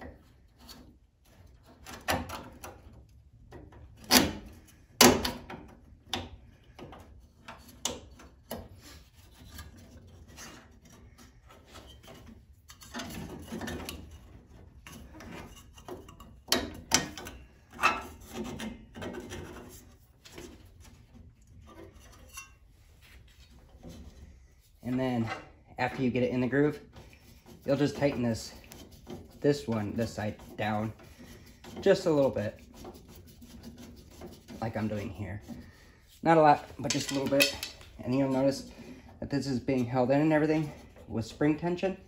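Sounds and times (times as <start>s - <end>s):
metal parts scraping and rubbing: 8.7s - 41.4s.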